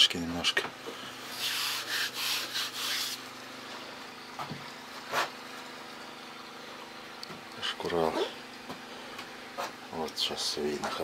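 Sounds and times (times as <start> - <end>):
steady low hum: 0.0 - 11.0
scratchy rubbing on log wall: 1.3 - 3.2.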